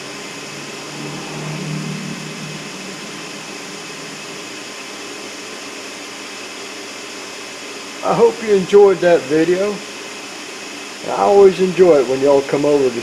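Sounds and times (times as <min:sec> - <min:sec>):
low hum: 0:00.0 - 0:05.6
cooling fan airflow: 0:00.0 - 0:13.0.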